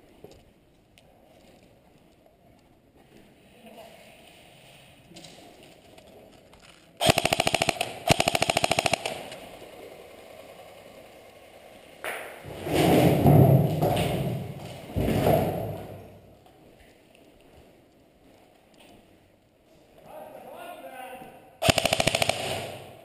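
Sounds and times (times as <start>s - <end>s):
airsoft gun automatic bursts: 7.0s - 11.9s, 21.6s - 23.0s.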